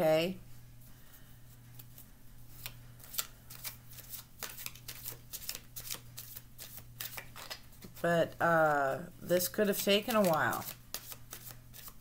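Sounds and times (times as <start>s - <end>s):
cards being shuffled: 1.7s - 8.0s, 9.7s - 12.0s.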